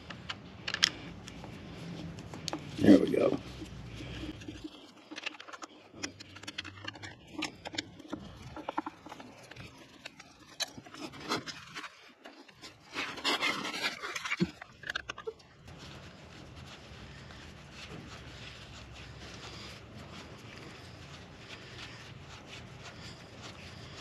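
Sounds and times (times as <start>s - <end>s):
screwdriver clicking and scraping: 0.0s - 2.8s, 4.2s - 15.3s
rustling and scraping: 0.0s - 24.0s.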